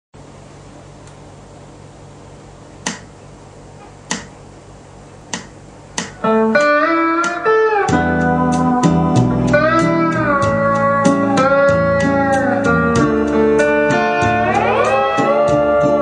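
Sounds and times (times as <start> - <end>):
pedal steel guitar melody: 6.2 - 16.0.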